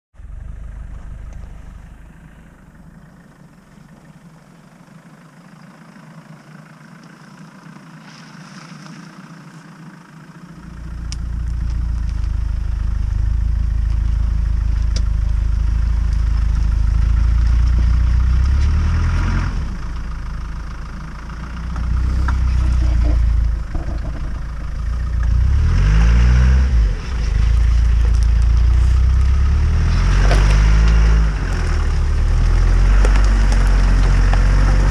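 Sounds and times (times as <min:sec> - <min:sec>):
suv engine revving: 0:10.4 - 0:34.9.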